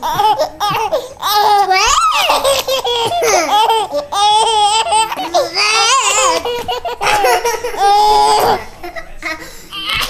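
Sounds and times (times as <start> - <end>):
baby laughing: 0.0 - 10.0.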